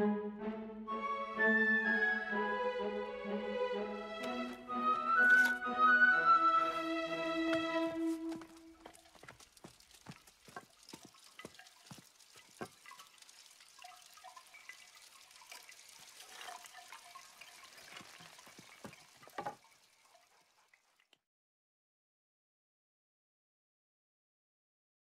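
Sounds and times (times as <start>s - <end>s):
drip-like plinks and clicks: 8.4s - 20.2s.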